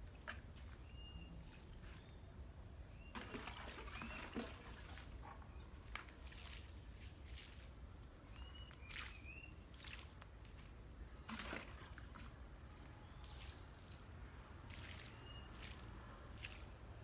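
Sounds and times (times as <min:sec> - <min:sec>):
bird chirping: 0:00.8 - 0:03.2, 0:08.2 - 0:09.6
water splashing on soil: 0:03.0 - 0:17.0.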